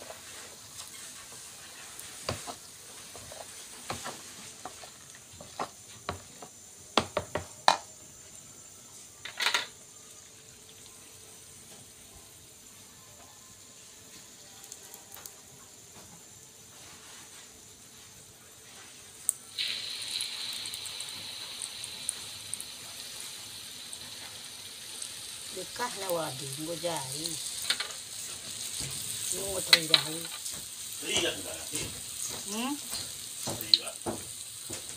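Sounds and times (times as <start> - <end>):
oil sizzling and crackling: 0.0 - 34.9.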